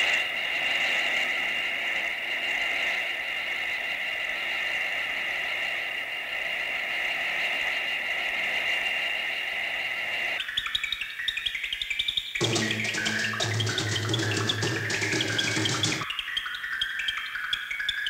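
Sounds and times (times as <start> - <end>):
held electronic tones: 12.4 - 16.0.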